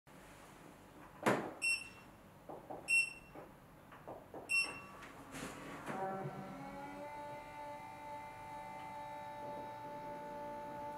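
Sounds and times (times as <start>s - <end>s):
short electronic beeps: 1.6s - 2.0s, 2.9s - 3.3s
motor humming: 5.8s - 10.9s.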